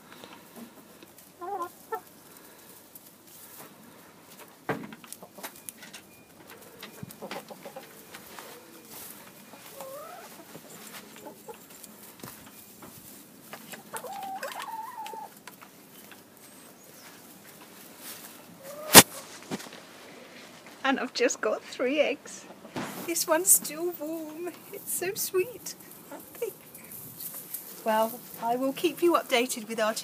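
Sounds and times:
hens clucking: 0.0s - 20.2s, 21.7s - 30.0s
hen calling: 6.6s - 11.7s, 13.8s - 15.3s, 18.6s - 19.2s.

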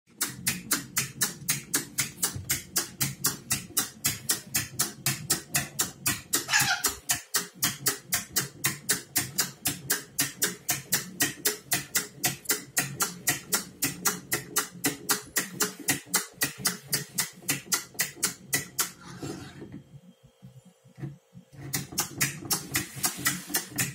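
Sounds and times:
clockwork toy clicking: 0.1s - 19.0s.

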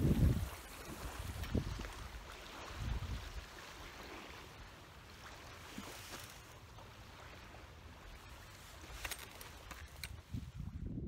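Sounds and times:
wind rumble on microphone: 0.0s - 4.4s, 9.7s - 11.0s
gusty wind: 0.0s - 4.7s, 10.0s - 11.0s
waves lapping at bank: 0.0s - 10.9s.

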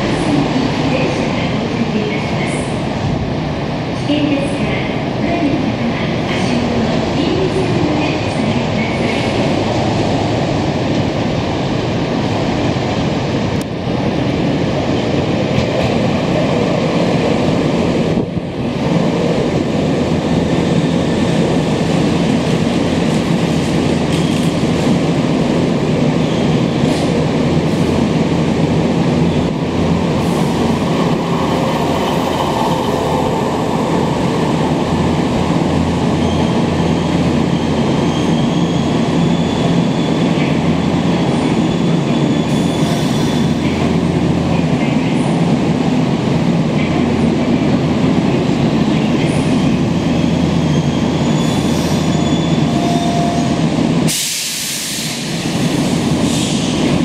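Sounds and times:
train rolling past: 0.0s - 57.0s
faint high squeal: 50.7s - 53.6s.

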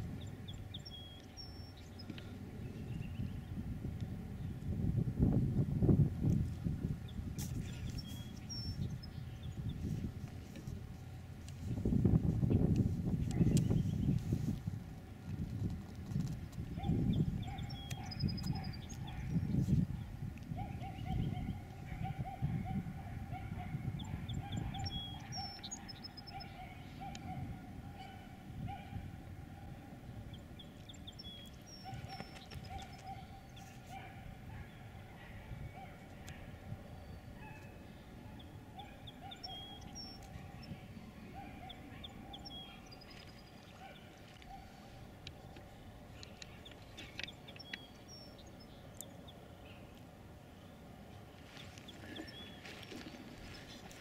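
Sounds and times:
low wind rumble: 0.0s - 54.0s
distant birds calling: 16.4s - 54.0s.

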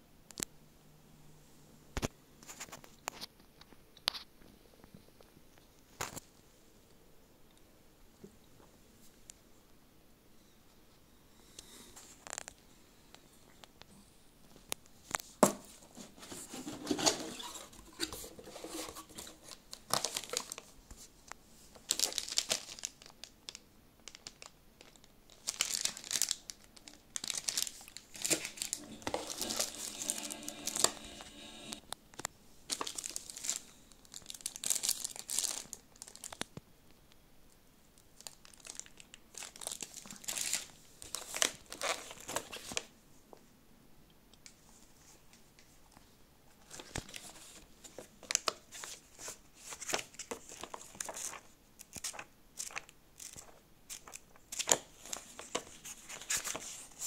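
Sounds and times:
plastic wrap crinkling: 15.0s - 36.6s, 38.0s - 42.9s, 46.6s - 57.0s.

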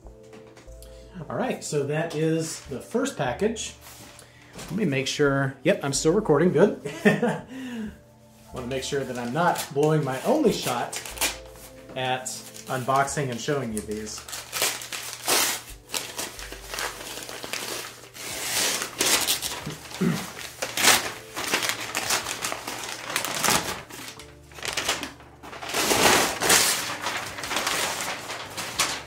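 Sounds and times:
cardboard packaging tearing: 9.0s - 11.5s, 12.4s - 29.0s.

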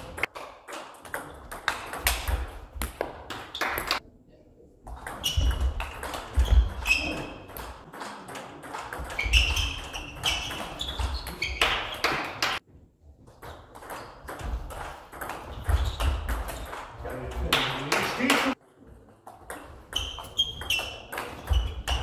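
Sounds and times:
shoe squeaks: 5.2s - 7.5s, 9.0s - 12.1s, 15.4s - 16.8s, 19.9s - 22.0s.

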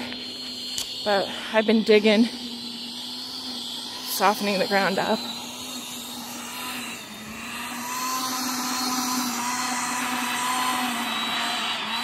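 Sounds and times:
electric garden tiller running: 0.0s - 12.0s.

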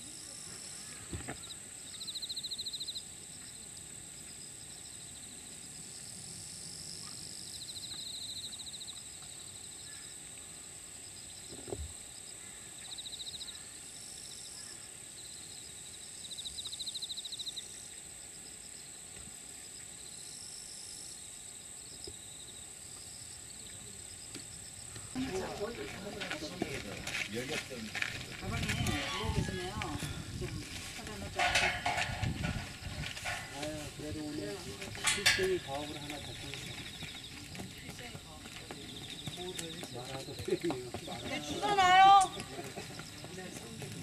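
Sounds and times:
insect pulsed trills: 0.0s - 25.7s
insects droning: 0.0s - 44.0s.

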